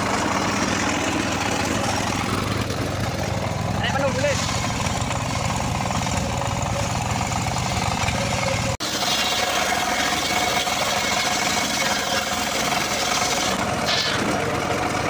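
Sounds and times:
circular saw blade whine: 0.0s - 15.0s
engine low rumble: 0.0s - 15.0s
saw cutting wood hiss: 4.2s - 5.0s, 8.8s - 14.4s.

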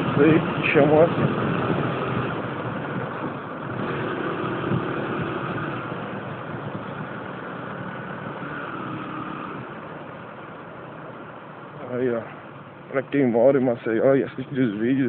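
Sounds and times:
motorcycle engine running: 0.0s - 10.6s
wind and road noise: 0.0s - 15.0s.

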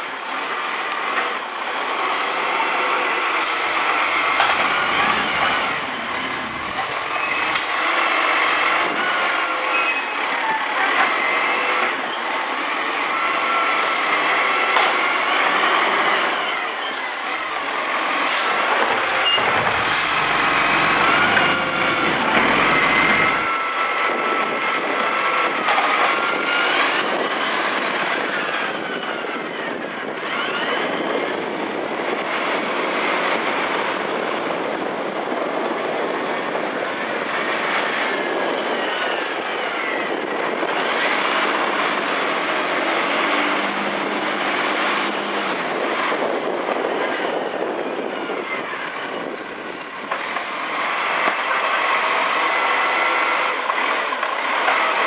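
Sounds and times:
garbage truck engine and hydraulics: 0.3s - 55.0s
air brake hisses: 2.1s - 2.5s.

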